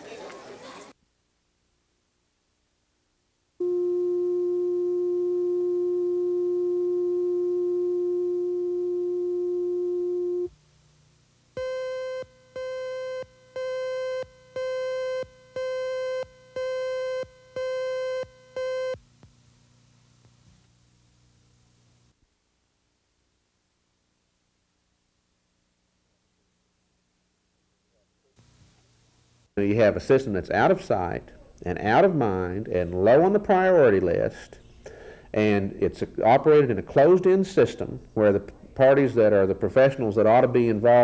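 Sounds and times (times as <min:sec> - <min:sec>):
steady test tone: 0:03.6 - 0:10.6, 0:11.5 - 0:19.0.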